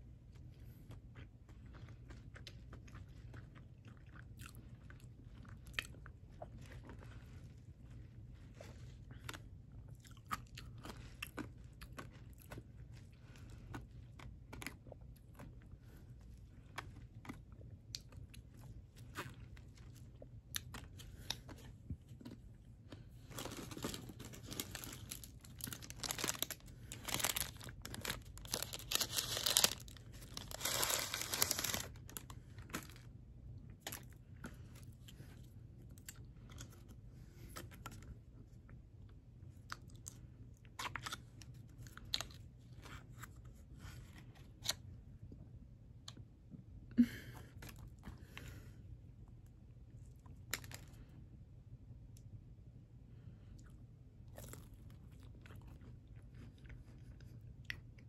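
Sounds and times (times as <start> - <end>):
crinkling paper packaging: 23.2 - 33.1.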